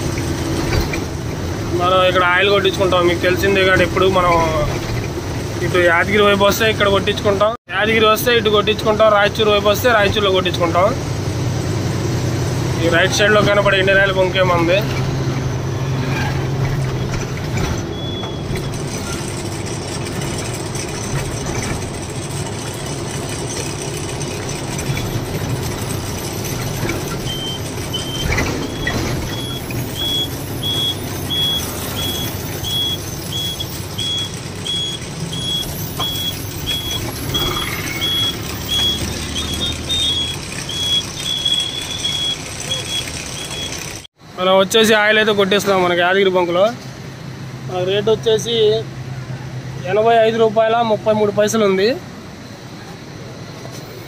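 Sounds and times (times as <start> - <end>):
lorry engine running: 0.0 - 44.4
reversing alarm beeping: 17.9 - 19.2, 27.1 - 44.0.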